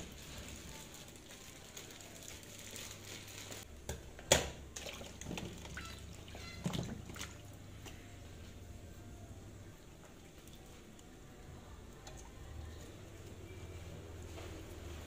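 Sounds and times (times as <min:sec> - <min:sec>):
water sloshing and splashing: 0:04.7 - 0:08.0.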